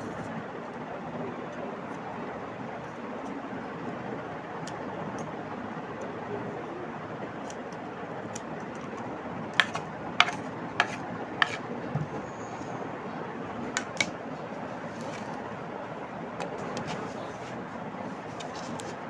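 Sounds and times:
steady background hiss: 0.0 - 19.0.

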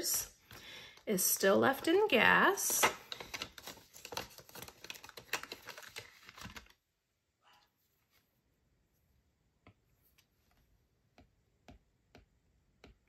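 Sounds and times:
banknotes rustling in plastic sleeve: 0.9 - 6.8
stylus tapping tablet screen: 9.6 - 13.0.

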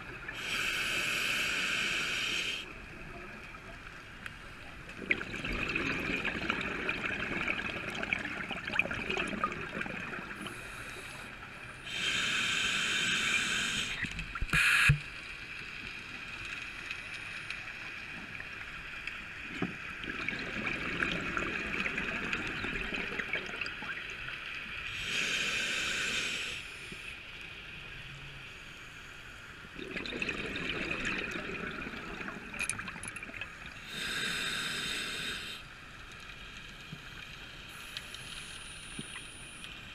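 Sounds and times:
scuba regulator breathing hiss: 0.4 - 2.7, 10.4 - 15.0, 24.9 - 27.1, 33.8 - 35.6
exhaled bubbles burbling: 4.9 - 10.6, 20.0 - 24.1, 29.8 - 33.8.

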